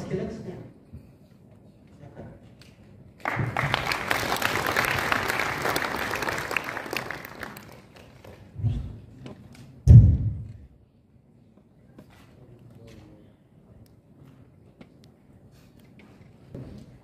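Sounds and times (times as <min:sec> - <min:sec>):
audience applauding: 0:03.2 - 0:08.5.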